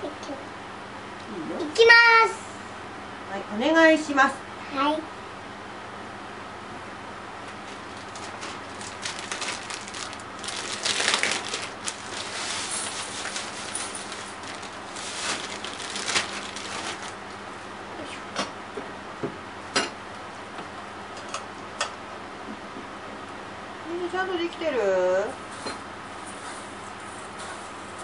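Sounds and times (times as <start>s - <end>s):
plastic bag crinkling: 7.8s - 17.3s.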